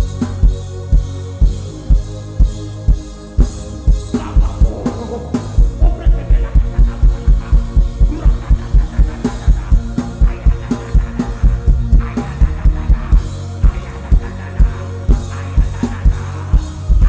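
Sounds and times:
gospel band music: 0.0s - 17.0s.

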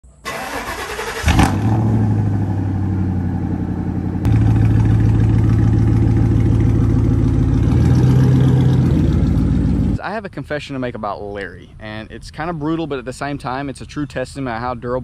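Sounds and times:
truck engine starting and idling: 0.1s - 10.0s
truck pulling away: 0.3s - 10.0s.

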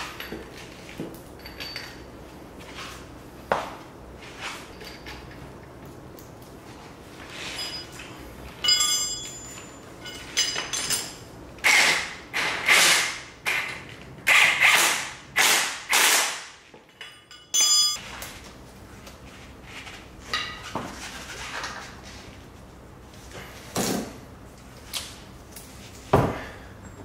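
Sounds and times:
impact wrench whining and hammering: 7.4s - 18.0s.

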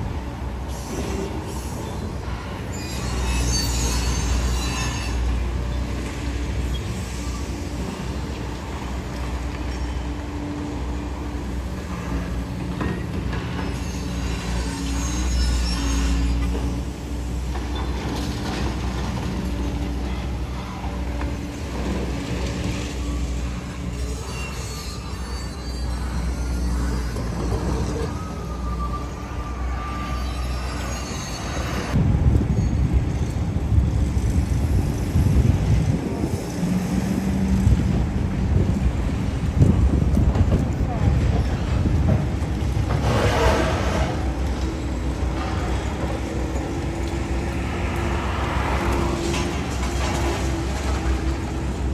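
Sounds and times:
street traffic passing: 0.0s - 51.9s
wind buffeting microphone: 31.9s - 43.0s
excavator diesel rumble: 33.5s - 51.9s.

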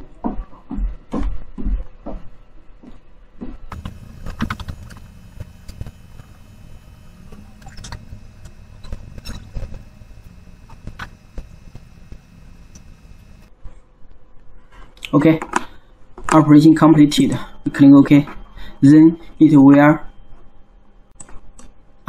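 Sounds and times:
sharp clicks: 3.7s - 13.5s.

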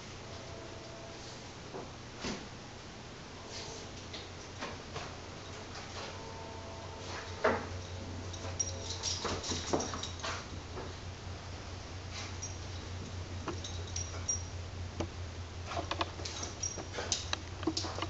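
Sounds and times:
high clinks: 7.7s - 10.4s, 12.2s - 14.6s, 16.2s - 17.3s.

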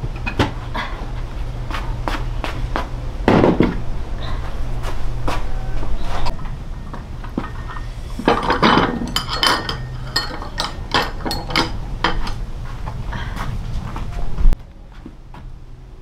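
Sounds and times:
dishes and utensils clinking: 6.2s - 12.4s.

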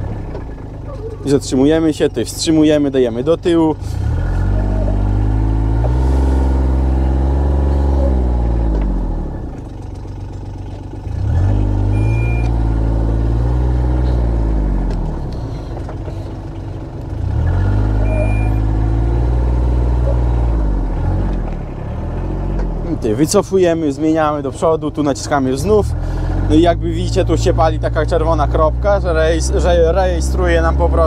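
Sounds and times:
utility vehicle engine revving: 0.0s - 31.0s
short high electronic beep: 18.0s - 18.7s.

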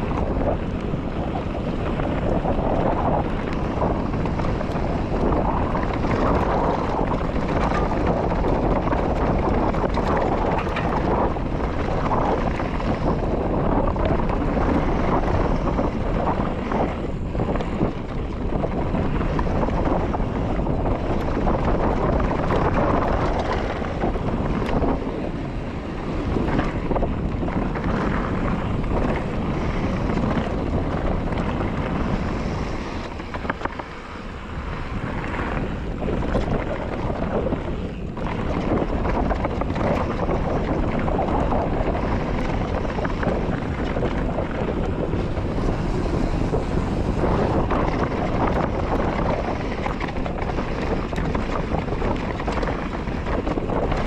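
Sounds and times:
bike rattling clicks and knocks: 0.0s - 54.0s
tyres rolling over ground: 0.0s - 54.0s
wind rushing over microphone: 0.0s - 54.0s.

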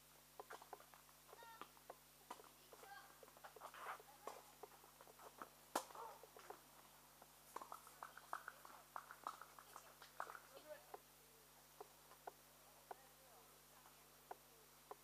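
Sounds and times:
faint ticks and chirps: 0.0s - 15.0s.

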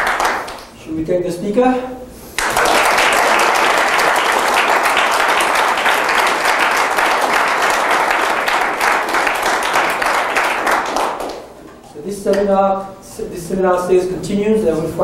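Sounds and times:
audience applauding: 0.0s - 0.7s, 2.4s - 11.5s.

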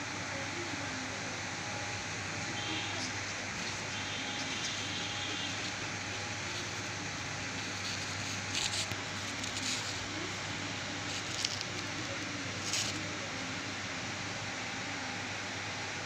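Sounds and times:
hand rustling leaves and stems: 3.6s - 13.4s.

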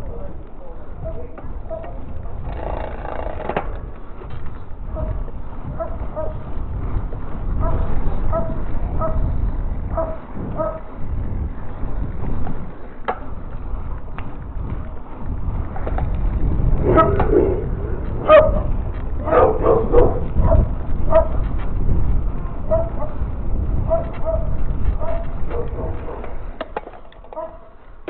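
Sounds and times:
bike tyre rumble on pavement: 0.0s - 28.0s
wind buffeting microphone: 0.0s - 28.0s
dog yapping: 27.4s - 27.7s.

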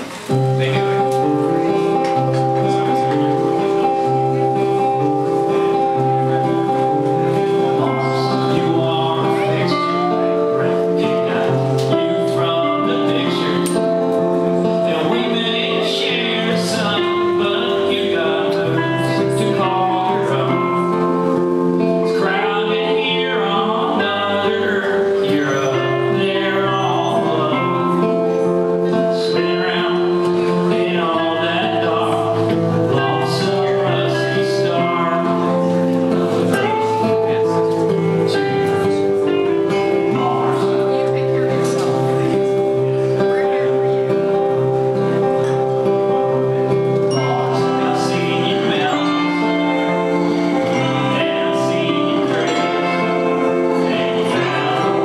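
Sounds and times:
guitars playing: 0.0s - 55.0s
person singing: 0.0s - 55.0s.

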